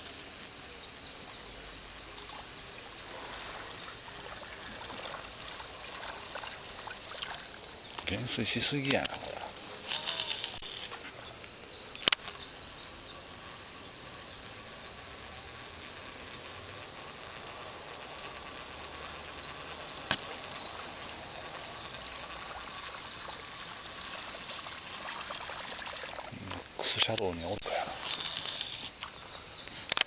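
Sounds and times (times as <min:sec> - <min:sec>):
insects shrilling: 0:00.0 - 0:30.0
short sharp clicks: 0:12.0 - 0:12.4.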